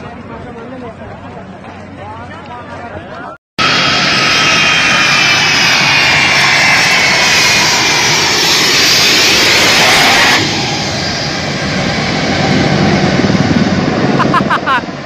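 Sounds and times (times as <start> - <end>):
jet engines roaring with whine: 3.6 - 15.0.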